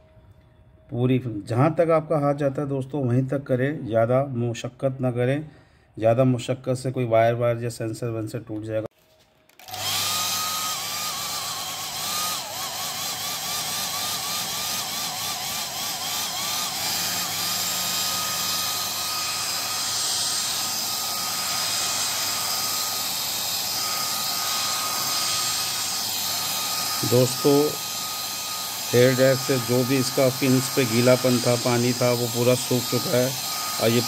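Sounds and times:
hair dryer whine and air rush: 9.5 - 34.0.

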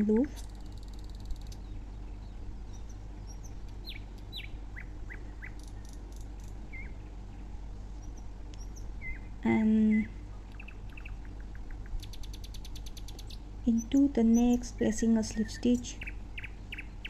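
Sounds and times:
birds chirping: 0.0 - 17.0
steady low hum: 0.0 - 17.0.

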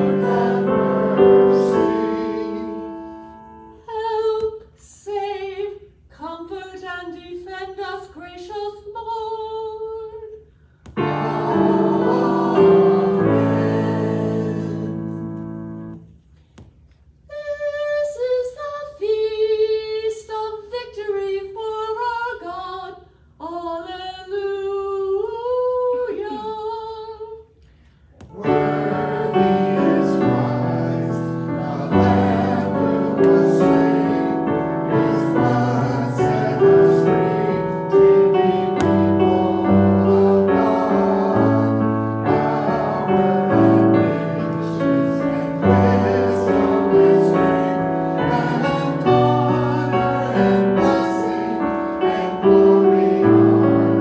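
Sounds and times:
piano chords: 0.0 - 3.8, 11.0 - 16.1, 28.3 - 54.0
people singing: 0.0 - 5.6, 11.0 - 15.4, 28.2 - 54.0.

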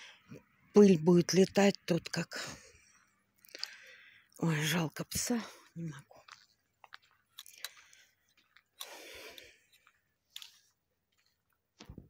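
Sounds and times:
footsteps on rough road: 2.9 - 12.0.

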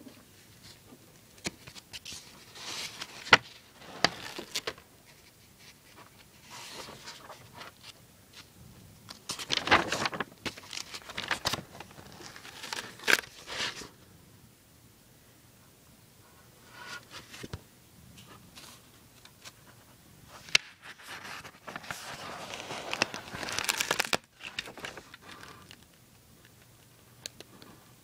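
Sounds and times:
paper pages rustling: 0.5 - 8.5, 9.1 - 13.9, 18.6 - 25.9.

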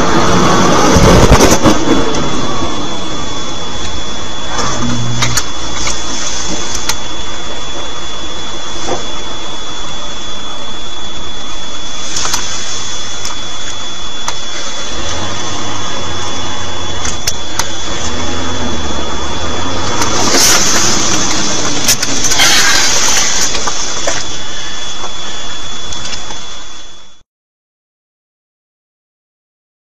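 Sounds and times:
noisy rushes: 0.0 - 27.2
thin high whine: 0.0 - 27.3
car engine and road noise: 14.6 - 24.0.

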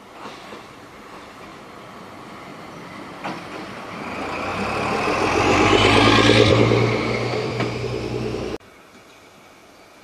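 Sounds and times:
diesel locomotive passing: 0.0 - 8.6.

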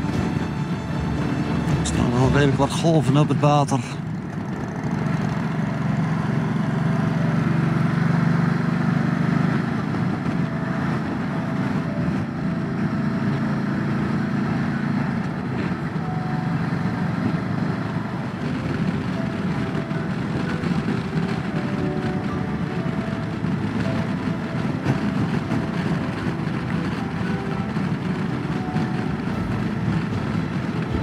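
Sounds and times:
motorcycle engine drone: 0.0 - 31.0
wind noise on microphone: 9.6 - 13.0, 17.1 - 31.0.

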